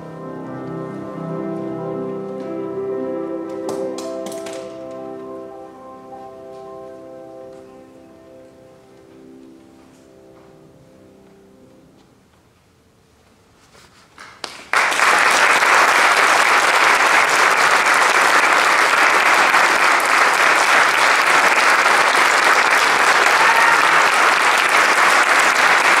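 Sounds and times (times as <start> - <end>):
audience applause: 14.4 - 26.0.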